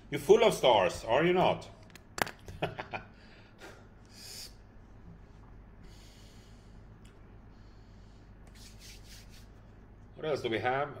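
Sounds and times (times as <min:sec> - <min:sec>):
low steady hum: 0:00.0 - 0:11.0
man sniffing: 0:03.6 - 0:04.6.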